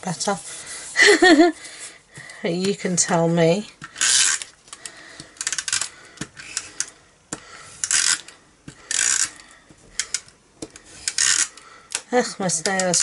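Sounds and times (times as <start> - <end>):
person speaking: 0.0 - 1.2.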